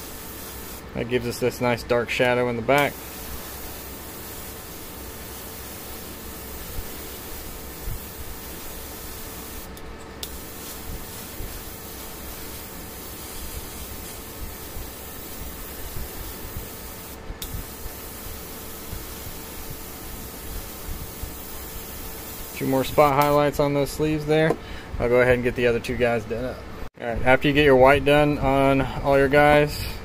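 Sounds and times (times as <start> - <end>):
airbrush spraying hiss: 0.0 - 0.9, 2.8 - 23.4.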